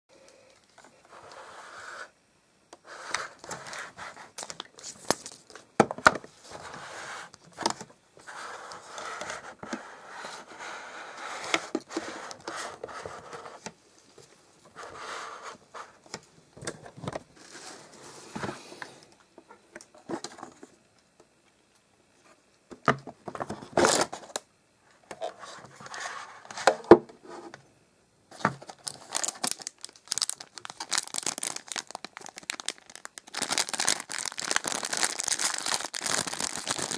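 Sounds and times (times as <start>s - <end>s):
cellophane wrappers crinkling: 3.3s - 5.6s, 28.6s - 36.9s.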